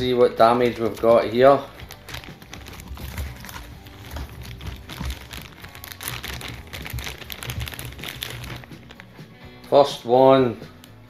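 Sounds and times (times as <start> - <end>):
plastic bag crinkling: 0.6 - 9.3.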